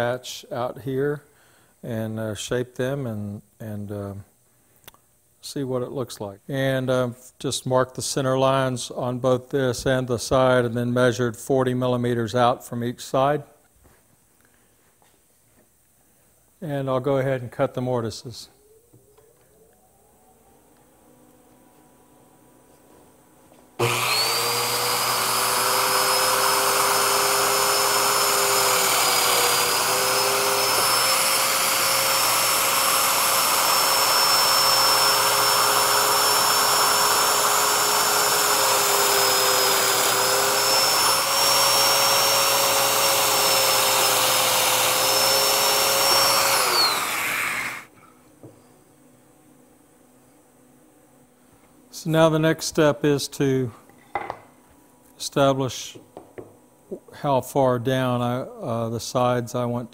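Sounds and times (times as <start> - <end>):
dust extractor running: 23.8 - 47.9
power joiner whining: 23.8 - 47.9.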